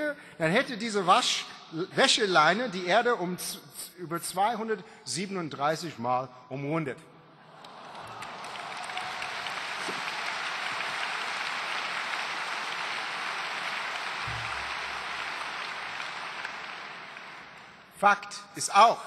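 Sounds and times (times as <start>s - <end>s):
audience applauding: 7.5s - 17.9s.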